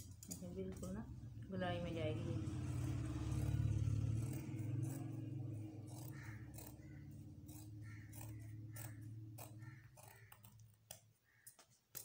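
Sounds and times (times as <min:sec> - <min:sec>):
scissors snipping cloth: 0:05.9 - 0:06.8, 0:07.4 - 0:12.0.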